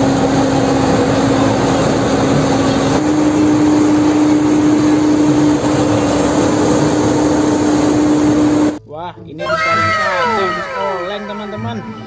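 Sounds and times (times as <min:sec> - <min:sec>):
diesel engine running: 0:00.0 - 0:08.8.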